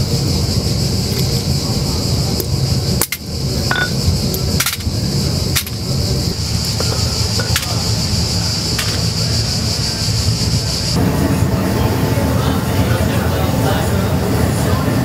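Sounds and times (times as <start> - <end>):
background hiss and hum: 0.0 - 15.0
glassy clinks: 3.7 - 4.0.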